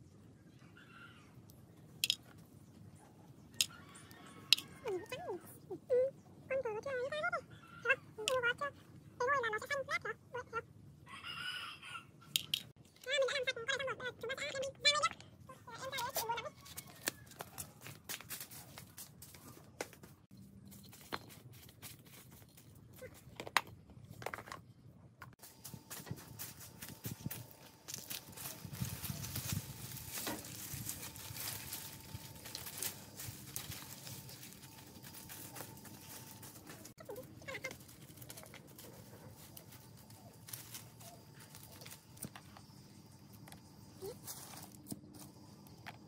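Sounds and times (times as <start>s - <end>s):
dry leaves rustling underfoot: 15.8s - 19.7s, 20.4s - 23.2s, 25.4s - 42.8s, 44.0s - 45.4s
footsteps in flip-flops: 16.0s - 23.3s, 25.4s - 42.7s.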